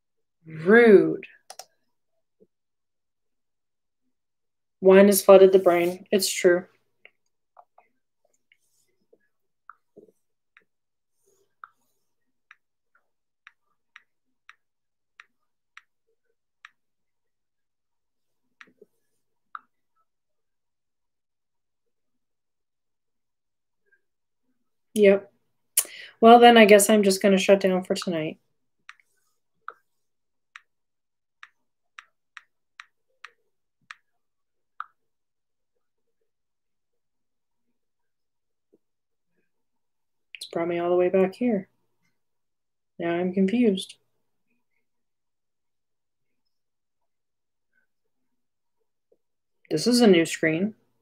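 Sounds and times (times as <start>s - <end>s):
faint keystroke clicks: 1.4s - 1.8s.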